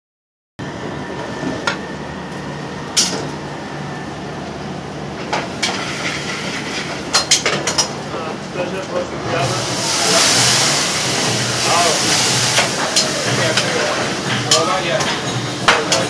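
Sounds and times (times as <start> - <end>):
rush of kitchen noise: 0.6 - 16.0
metal pans and utensils clanking: 9.4 - 16.0.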